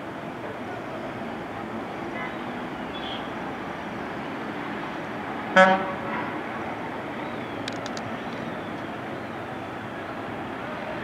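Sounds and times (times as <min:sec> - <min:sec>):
street traffic noise: 0:00.0 - 0:11.0
faint high clicks: 0:07.6 - 0:08.9.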